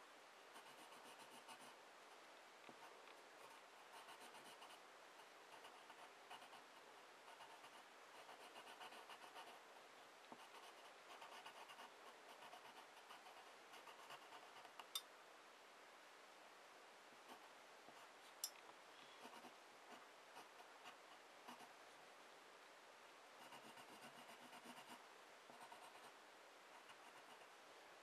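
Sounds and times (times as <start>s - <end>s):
pencil scratching on paper: 0.6s - 1.7s, 2.8s - 4.8s, 5.5s - 6.7s, 7.3s - 9.6s, 10.4s - 14.8s, 19.2s - 19.5s, 23.4s - 26.1s, 26.8s - 27.6s.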